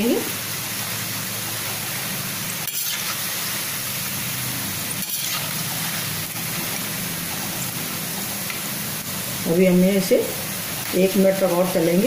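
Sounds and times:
oil sizzling while deep-frying: 0:00.0 - 0:12.0.

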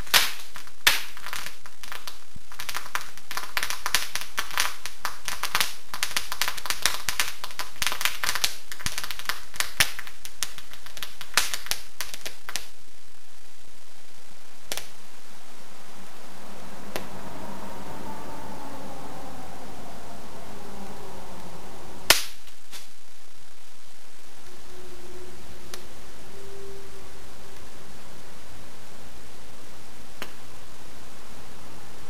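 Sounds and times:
single sharp cracks: 0:00.0 - 0:03.0, 0:22.1 - 0:22.9
firework crackling: 0:00.0 - 0:32.0.

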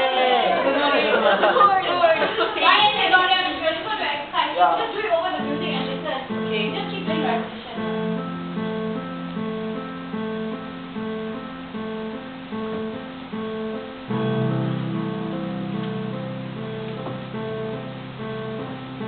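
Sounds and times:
electronic keyboard held notes: 0:05.4 - 0:19.0.

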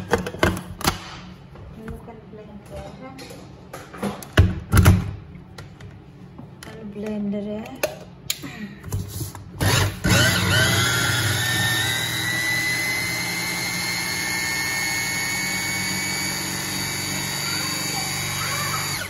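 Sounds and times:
hand blender whining: 0:09.6 - 0:19.0.

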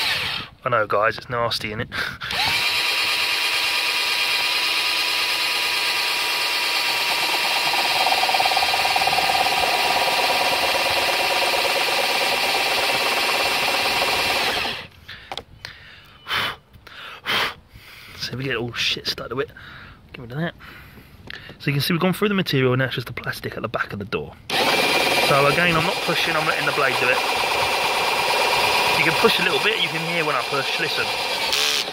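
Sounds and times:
cordless drill boring through plastic: 0:00.0 - 0:00.6, 0:02.3 - 0:14.9, 0:24.5 - 0:31.9.

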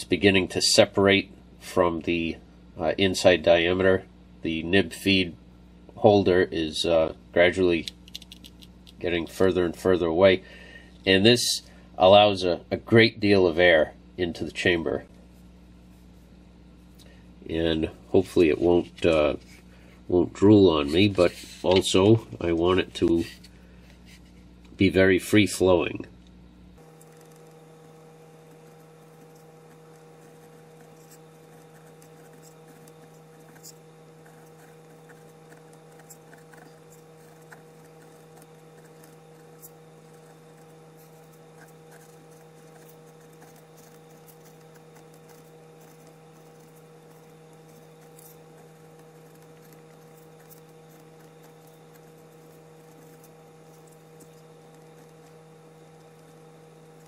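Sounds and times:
faint electrical hum: 0:00.0 - 0:57.0
pen nib scratching on paper: 0:26.9 - 0:57.0.

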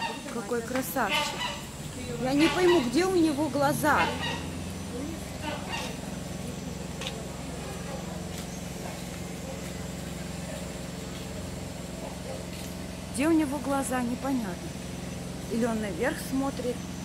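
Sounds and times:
faint background voices: 0:00.0 - 0:13.2
low mechanical hum: 0:00.0 - 0:17.0.

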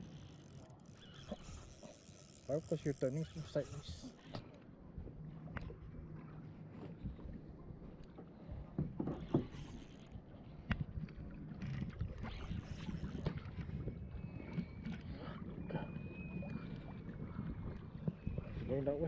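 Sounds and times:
water washing against hull: 0:01.1 - 0:19.0
faint thin whistle: 0:13.9 - 0:17.0.

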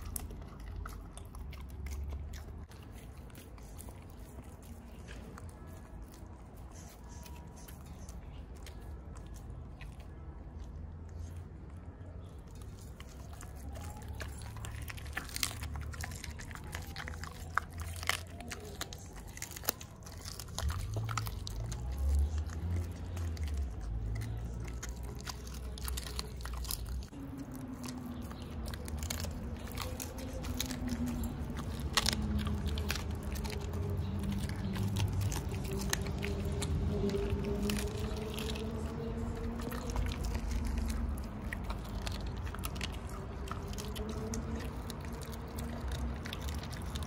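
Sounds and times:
dog chewing crunching bones: 0:00.0 - 0:47.0.

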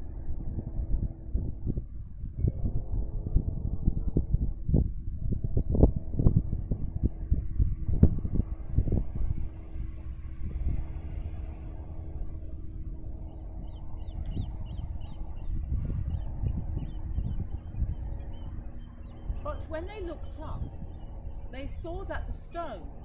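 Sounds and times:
wind rumbling on microphone: 0:00.0 - 0:23.0
birds chirping faintly: 0:09.2 - 0:23.0.

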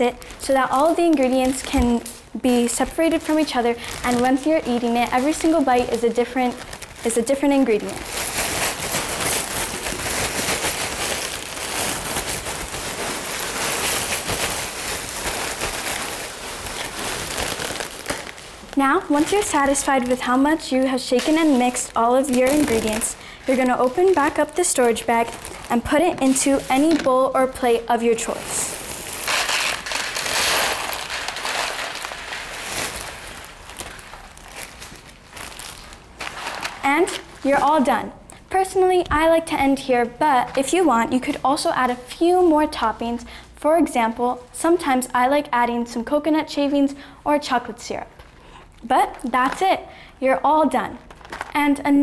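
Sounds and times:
plastic bag rustling: 0:00.0 - 0:38.0, 0:50.8 - 0:52.0
snack mix rattling in plastic bag: 0:02.6 - 0:27.1, 0:28.3 - 0:37.4, 0:51.0 - 0:51.6.

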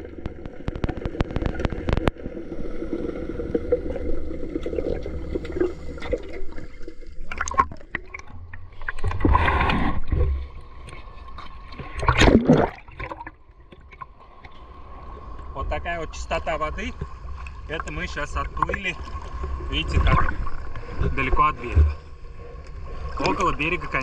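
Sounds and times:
water splashing and gurgling: 0:00.0 - 0:24.0.

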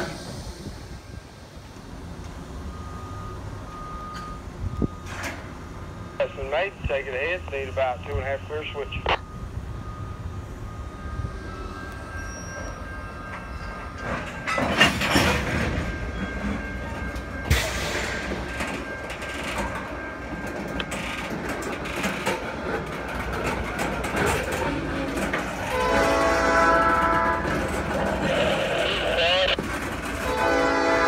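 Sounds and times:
freight cars wheels clanking: 0:13.2 - 0:28.8
locomotive horn: 0:25.6 - 0:29.6, 0:30.2 - 0:31.0.

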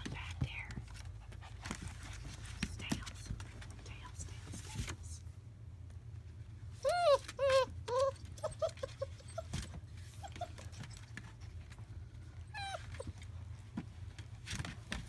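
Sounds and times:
puppies yipping and whimpering: 0:06.8 - 0:11.1, 0:12.4 - 0:13.2.

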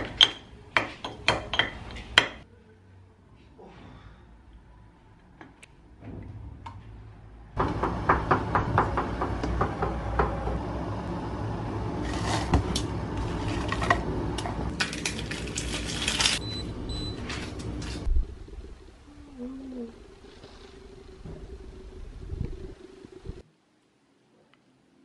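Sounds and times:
steady noise: 0:17.8 - 0:24.2.

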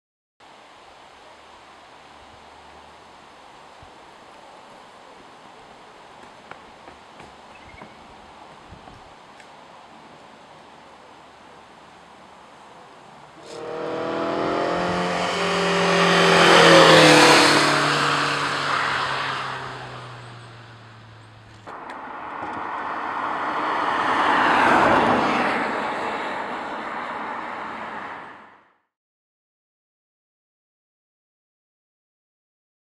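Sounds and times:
tyre and wind noise: 0:06.3 - 0:09.7
car motor passing at speed: 0:13.4 - 0:28.7.

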